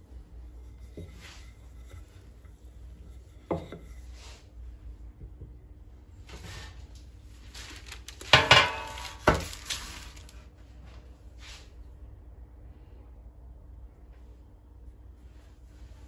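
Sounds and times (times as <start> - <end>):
soft handling sounds: 6.3 - 11.8
kitchenware knocking and clinking: 8.3 - 9.6.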